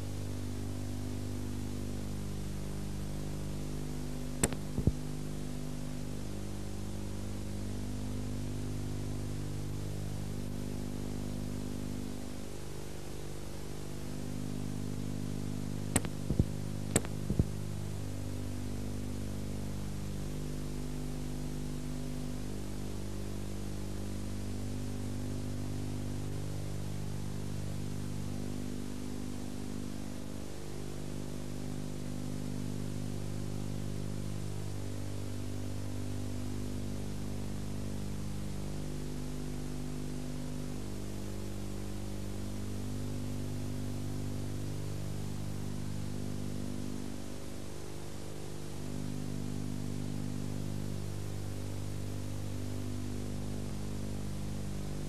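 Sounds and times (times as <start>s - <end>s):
videotape hiss: 0.0s - 55.0s
tape glitch clicks: 4.4s - 5.0s, 15.9s - 17.5s.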